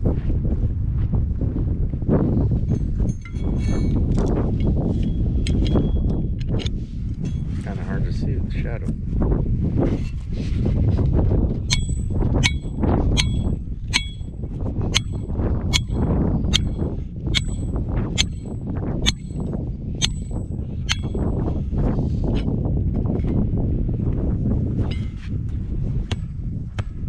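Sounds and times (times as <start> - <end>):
hammer striking metal stake: 11.7 - 21.4.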